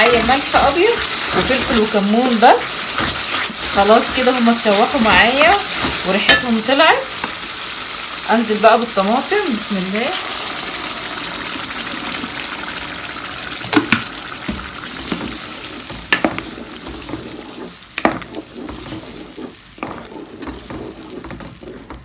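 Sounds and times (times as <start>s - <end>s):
wooden spoon knocking metal pot: 0.0s - 7.4s, 15.9s - 17.0s, 18.0s - 18.4s
onions sizzling in oil: 0.0s - 22.0s
tomato sauce pouring into pot: 10.2s - 15.9s.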